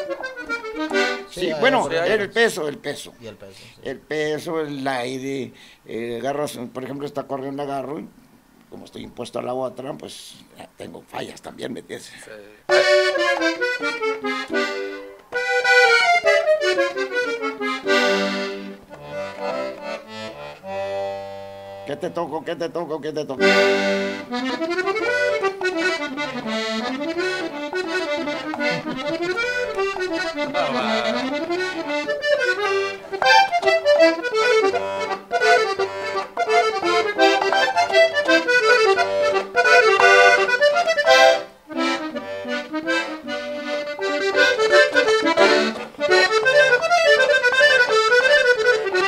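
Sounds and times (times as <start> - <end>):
button accordion melody: 0.0 - 2.6, 12.7 - 22.7, 23.3 - 49.0.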